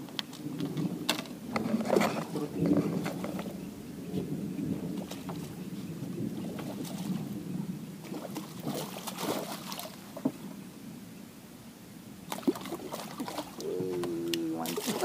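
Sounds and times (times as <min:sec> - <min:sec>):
fish thrashing and splashing: 0:06.4 - 0:07.3, 0:08.0 - 0:10.2, 0:12.3 - 0:15.0.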